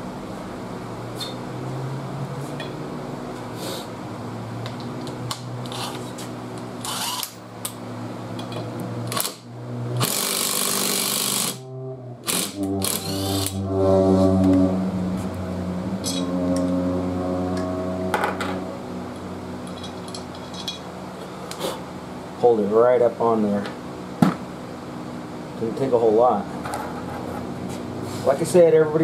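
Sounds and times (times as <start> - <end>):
impact wrench motor whirring: 6.8 - 7.4, 9.1 - 11.6, 12.2 - 13.6.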